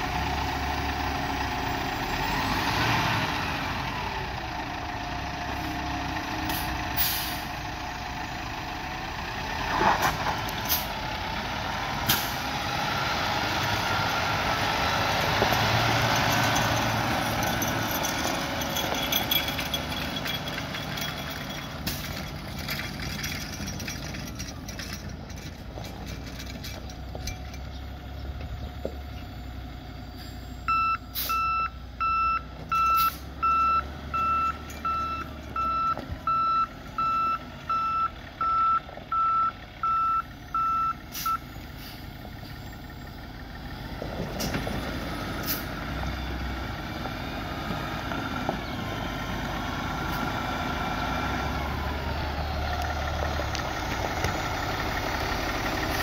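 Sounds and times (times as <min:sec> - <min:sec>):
diesel engine running: 0:00.0 - 0:56.0
truck backup alarm beeping: 0:30.3 - 0:43.1.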